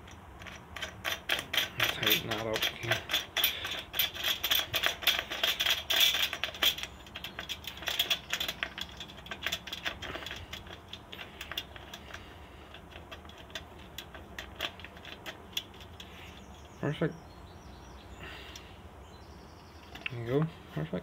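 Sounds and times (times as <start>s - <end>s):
wrench clicking on metal: 0.0s - 16.1s.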